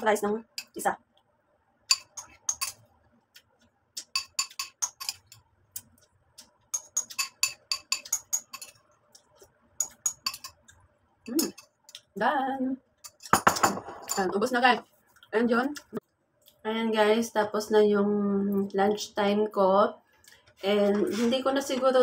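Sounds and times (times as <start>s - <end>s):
metal spoon clinking on ceramic bowl: 1.9s - 2.9s, 4.0s - 5.4s, 6.7s - 8.8s, 9.8s - 10.7s, 13.0s - 14.3s.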